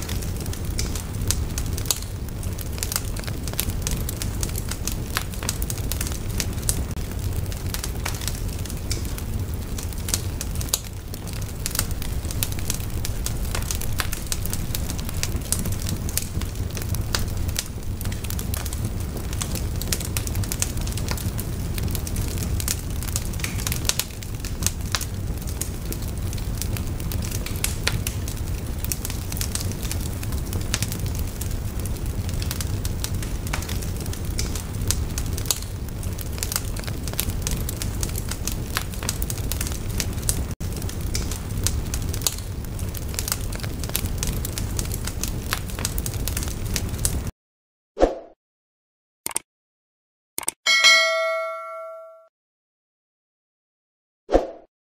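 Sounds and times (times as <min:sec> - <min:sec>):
steady low rumble: 0:00.0 - 0:19.5
sharp pops of fire: 0:00.0 - 0:47.3
wood fire crackling: 0:00.0 - 0:47.3.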